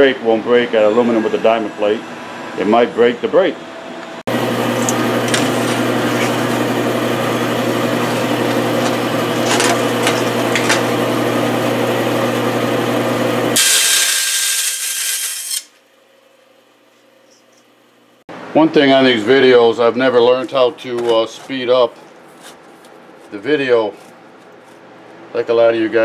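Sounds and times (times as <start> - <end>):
band saw cutting metal: 4.3 - 15.8.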